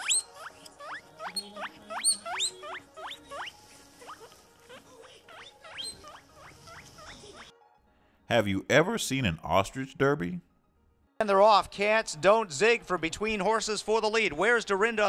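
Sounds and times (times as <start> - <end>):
guinea pig squealing: 0.0 - 7.6.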